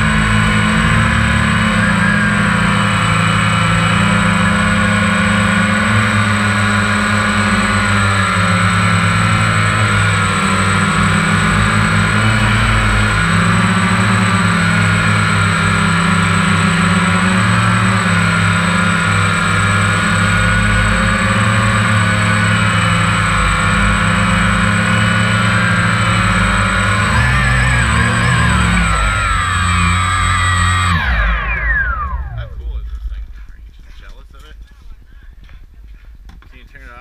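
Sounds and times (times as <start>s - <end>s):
drone motors and propellers whining: 0.0s - 37.0s.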